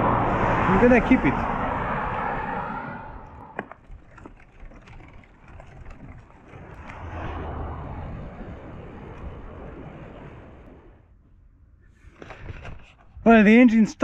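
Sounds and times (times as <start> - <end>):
vehicle passing: 0.0 - 3.6, 6.4 - 11.0.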